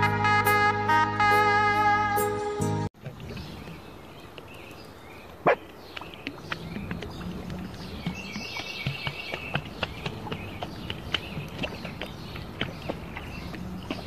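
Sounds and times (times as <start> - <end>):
water lapping and sloshing: 3.0 - 14.0.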